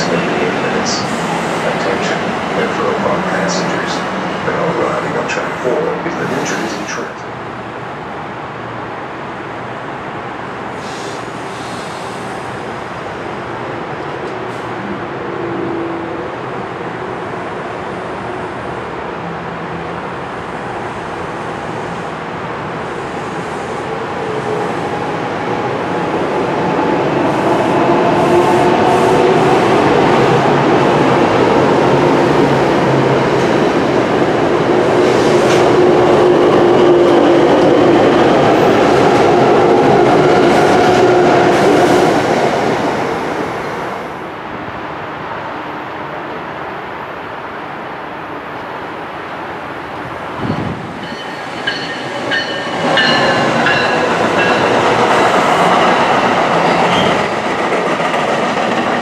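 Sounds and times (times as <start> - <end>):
train wheels rumbling: 50.0 - 59.0.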